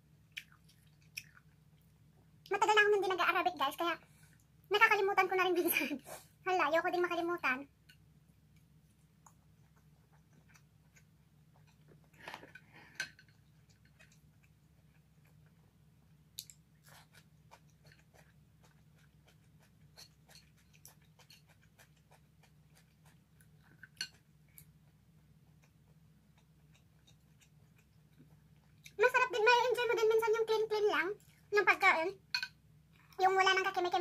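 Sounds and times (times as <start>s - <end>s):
chewing and mouth sounds: 0.2s - 2.5s, 8.5s - 29.1s.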